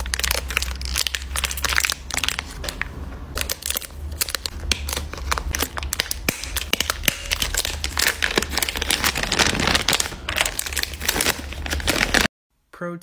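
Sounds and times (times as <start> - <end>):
plastic bag crinkling: 0.0 - 12.3
paper bag rustling: 7.3 - 12.3.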